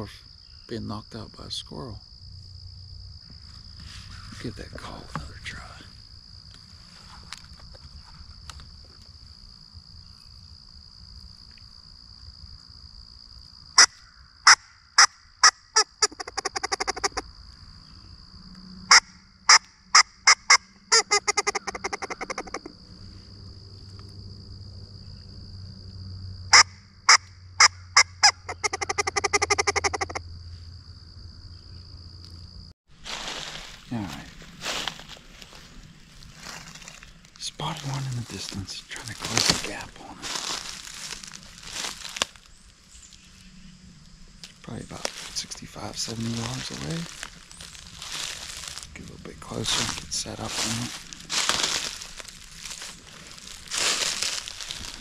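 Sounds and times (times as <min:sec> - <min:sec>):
squirrel call barks and chatter: 0:20.3 - 0:22.7, 0:28.0 - 0:30.2.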